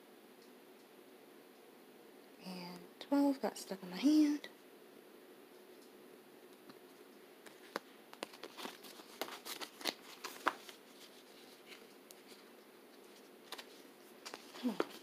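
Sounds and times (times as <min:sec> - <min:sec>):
paper stickers crinkling: 0:07.4 - 0:15.0.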